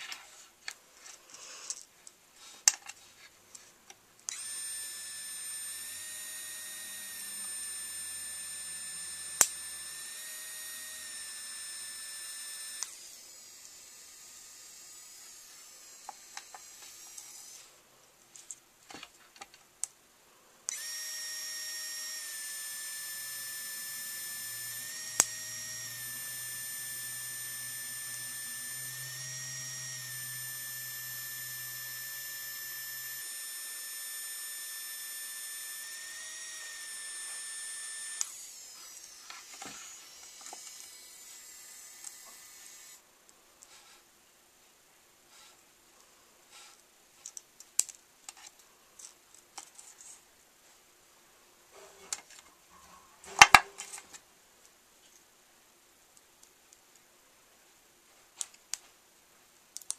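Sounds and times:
pen motor whining: 4.3 - 17.7, 20.7 - 43.0
sharp clicks: 7.1 - 10.2, 22.1 - 38.4.

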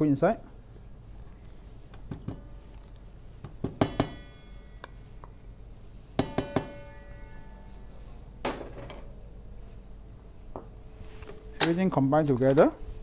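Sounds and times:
utensil knocking metal bowl: 3.6 - 4.4, 6.2 - 7.0
bowl ringing: 3.8 - 9.2.

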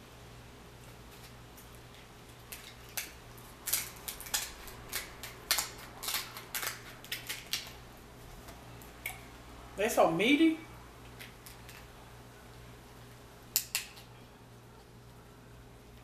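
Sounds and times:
scissors cracking crab shell: 2.5 - 7.8, 13.5 - 14.1.

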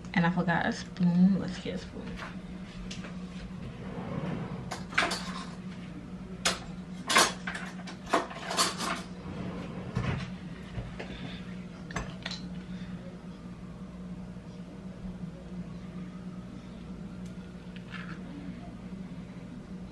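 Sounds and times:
kitchen cabinets opening and shutting: 3.6 - 5.6, 8.1 - 10.4
cutlery rattling: 4.8 - 5.6, 7.0 - 9.1.

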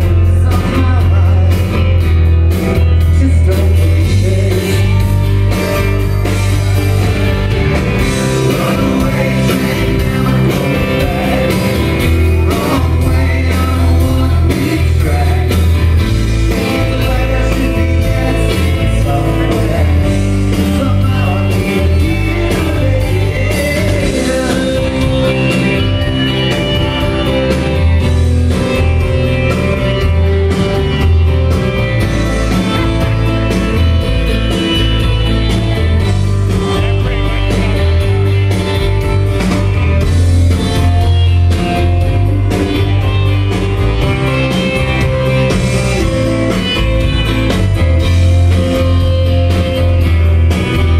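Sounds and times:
person singing: 0.0 - 2.1, 2.8 - 5.5, 8.0 - 27.6
rock band playing live: 0.0 - 50.9.

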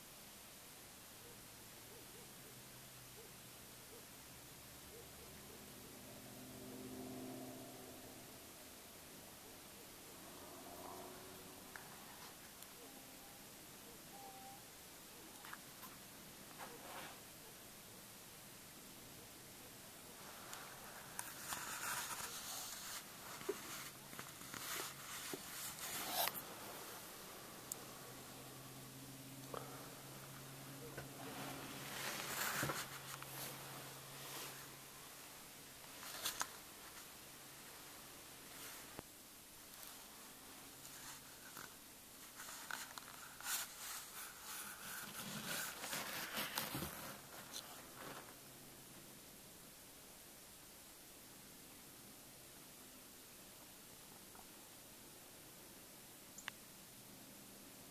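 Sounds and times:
soft steady hiss: 0.0 - 57.9
clothing rustling: 31.2 - 34.7.

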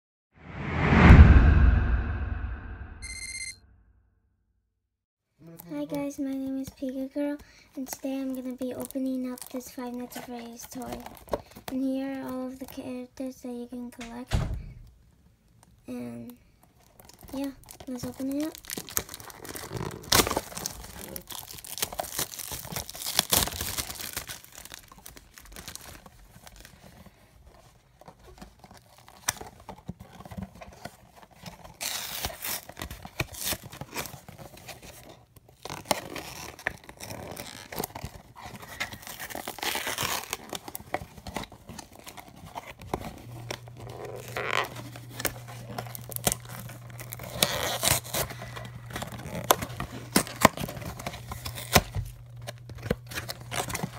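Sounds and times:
plastic packaging crinkling and tearing: 7.8 - 11.8, 16.7 - 53.9.

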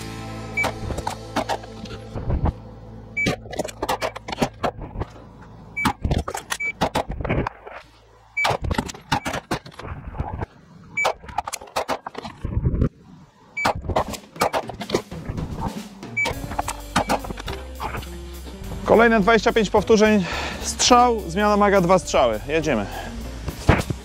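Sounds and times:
shot timer beeps: 0.6 - 0.9, 3.2 - 3.4, 16.2 - 17.3.

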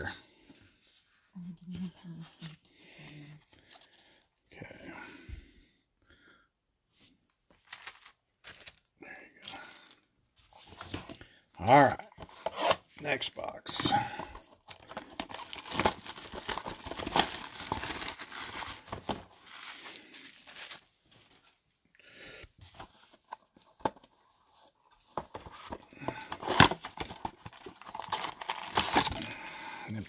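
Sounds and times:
cardboard and foil packs rustling: 7.5 - 11.3, 13.7 - 21.7, 22.6 - 30.0
plastic wrapping tearing and crinkling: 7.6 - 8.9, 14.7 - 21.5, 26.4 - 29.5.

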